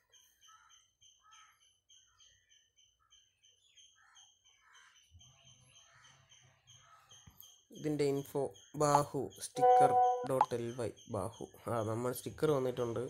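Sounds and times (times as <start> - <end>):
faint high chirps: 9.6 - 10.9.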